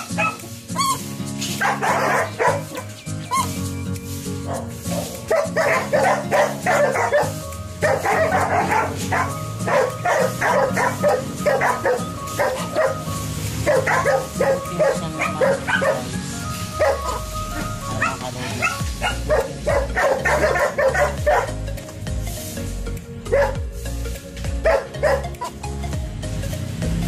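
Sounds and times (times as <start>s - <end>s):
dog barking: 0.0s - 3.5s, 4.5s - 16.1s, 16.8s - 17.2s, 18.0s - 21.5s, 23.3s - 23.6s, 24.6s - 25.3s
background music: 0.0s - 27.0s.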